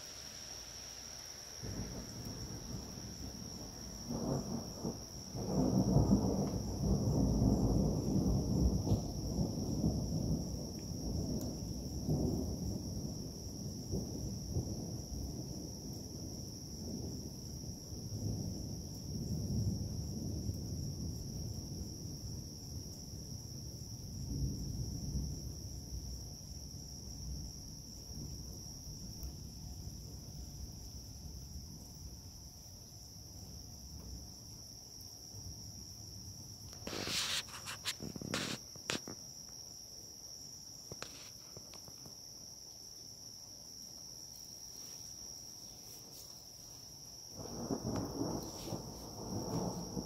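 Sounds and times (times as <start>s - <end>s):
night insects trilling: 0.0s - 50.0s
distant thunder rumbling: 1.6s - 15.8s, 46.9s - 50.0s.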